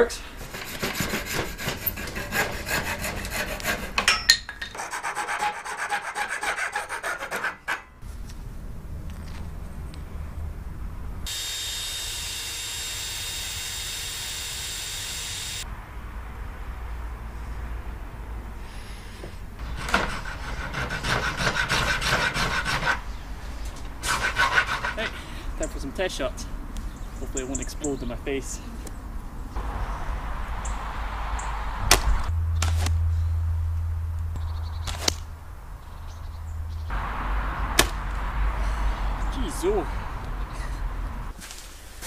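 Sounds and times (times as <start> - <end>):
rasp shaping antler: 0.0 - 8.0, 19.6 - 23.1, 24.0 - 25.2
hacksaw cutting through antler: 0.4 - 4.2, 4.8 - 7.9, 19.7 - 23.0, 24.0 - 25.1
low hum: 29.6 - 38.9.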